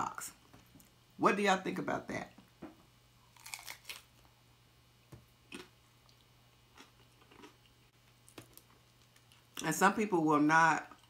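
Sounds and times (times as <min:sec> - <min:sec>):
taco crunching: 0:03.2 - 0:04.3, 0:05.5 - 0:09.6.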